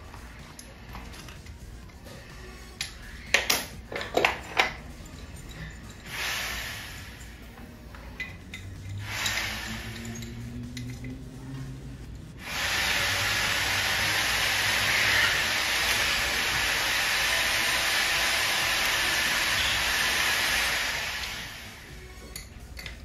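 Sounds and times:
metal tools clinking on brass: 2.8 - 6.1, 7.2 - 11.2, 22.2 - 23.0
steady loud hiss: 5.7 - 7.8, 8.8 - 22.4.

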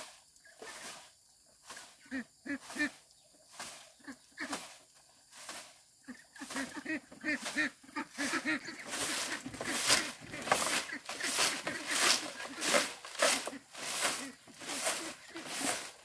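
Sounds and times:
farm fowl calling: 2.0 - 3.0, 6.0 - 16.0
rustling: 2.6 - 16.0.

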